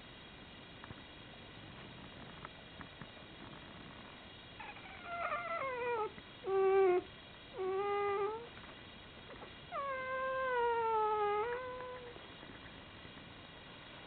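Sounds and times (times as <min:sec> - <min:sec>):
puppies crying in high squeals: 0:04.6 - 0:06.1.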